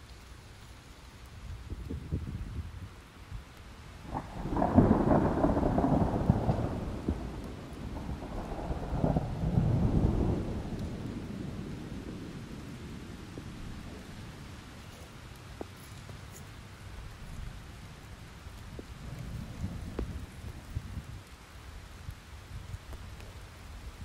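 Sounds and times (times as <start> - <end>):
rain falling: 0.0 - 24.0
rolling thunder rumble: 4.0 - 14.6, 18.8 - 21.3.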